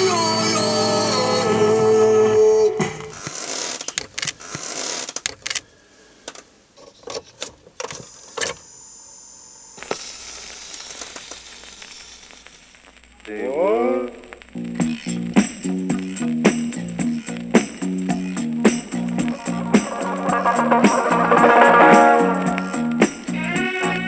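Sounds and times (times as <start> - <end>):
music: 0.0 - 3.0, 14.6 - 24.0
short steady hum: 17.8 - 23.4.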